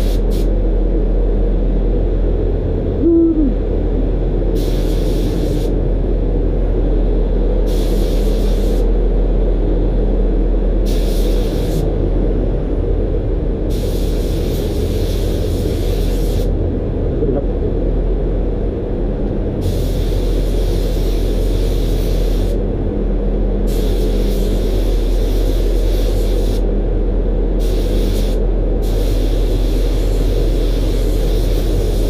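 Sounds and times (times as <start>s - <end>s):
spray gun hissing: 0.0s - 0.5s, 4.6s - 5.7s, 7.7s - 8.9s, 10.8s - 11.8s, 13.7s - 16.5s, 19.6s - 22.6s, 23.7s - 26.6s, 27.6s - 32.0s
low rumble: 0.0s - 25.2s.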